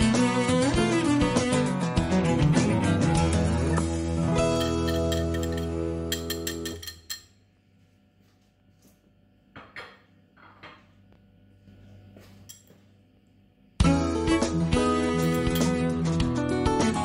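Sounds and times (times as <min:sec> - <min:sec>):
guitar background music: 0:00.0 - 0:06.8, 0:13.8 - 0:17.0
dishes and utensils clicking: 0:04.5 - 0:07.4.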